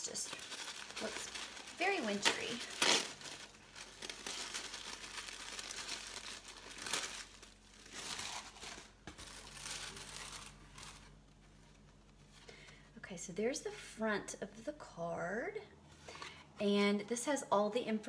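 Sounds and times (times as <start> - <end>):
tissue paper rustling: 0.0 - 12.4.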